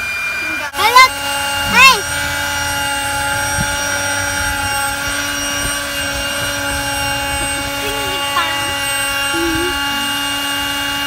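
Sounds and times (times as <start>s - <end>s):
steady machine hum: 0.0s - 11.0s.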